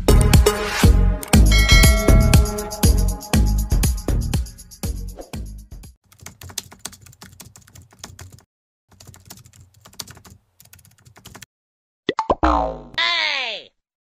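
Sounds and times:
upbeat music jingle: 0.3 - 5.0
computer keyboard typing: 6.1 - 11.5.

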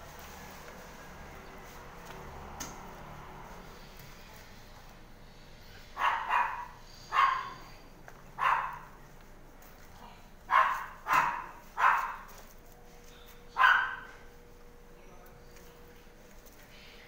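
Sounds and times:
dog barking: 6.0 - 7.7, 8.4 - 9.0, 10.5 - 12.3, 13.5 - 14.2.

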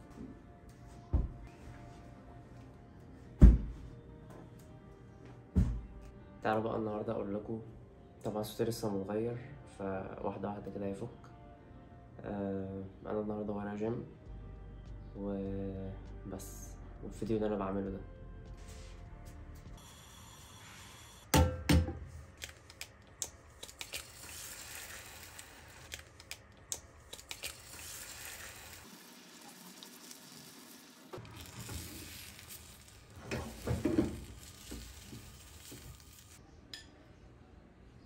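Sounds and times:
eggs sizzling in frying pan: 23.6 - 36.4.

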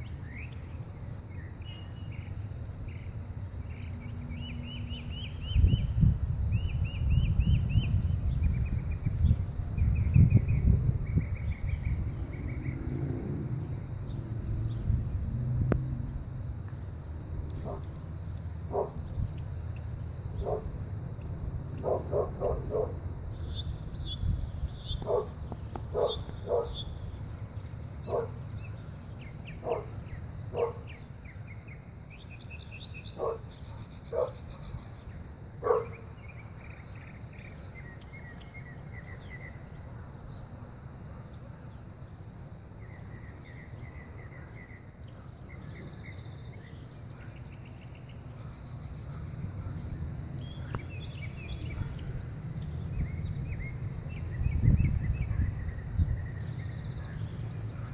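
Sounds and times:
steady low rumble: 5.1 - 30.6
birds chirping: 17.5 - 57.9
dog barking: 18.7 - 19.0, 20.4 - 20.7, 21.8 - 23.0, 25.0 - 26.8, 28.1 - 28.4, 29.6 - 29.9, 30.5 - 30.9, 33.2 - 33.4, 34.1 - 34.4, 35.6 - 36.0, 51.7 - 52.1.

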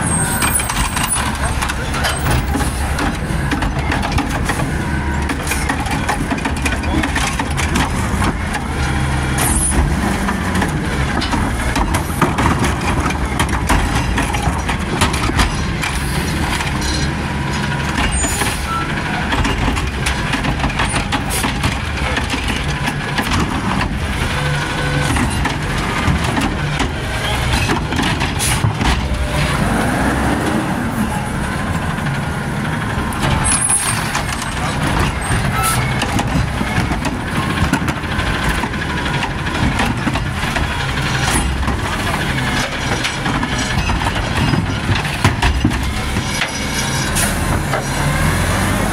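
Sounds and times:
truck diesel engine revving: 21.2 - 48.9.

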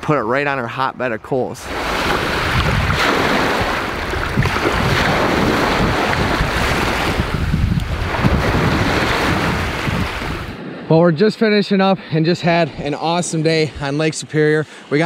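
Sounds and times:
lake waves washing onto shore: 1.2 - 10.9
wind buffeting microphone: 1.7 - 11.3.

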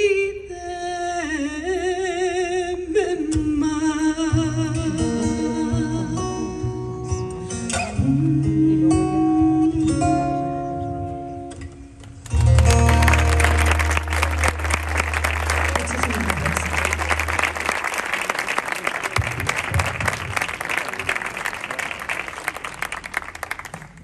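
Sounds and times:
plucked guitar: 4.3 - 16.6
audience applause: 12.3 - 24.0.

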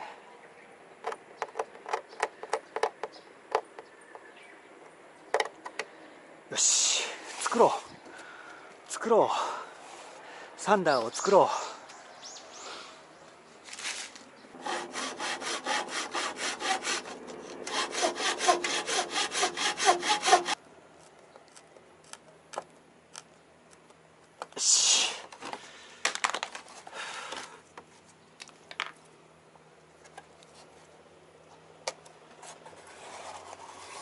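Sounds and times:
hand saw cutting wood: 14.6 - 20.6.

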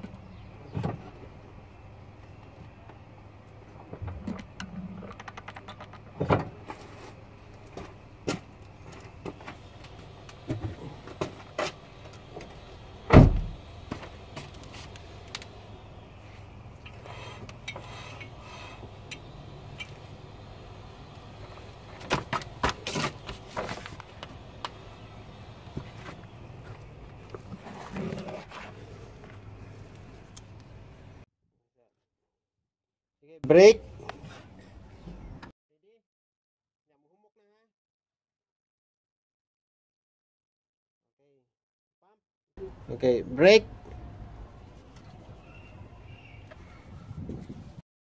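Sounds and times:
heavy thump: 13.1 - 14.1.

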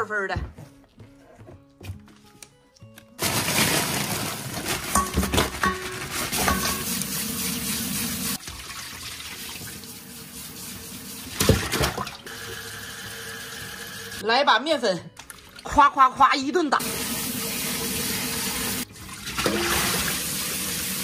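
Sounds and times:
plastic bag rustling: 3.1 - 6.8
tap water running into bowl: 6.4 - 14.2.

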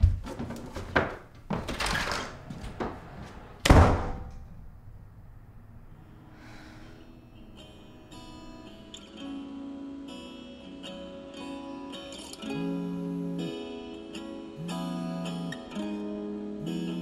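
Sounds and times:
thumps and knocks: 0.0 - 3.0
door slamming shut: 1.6 - 4.6.

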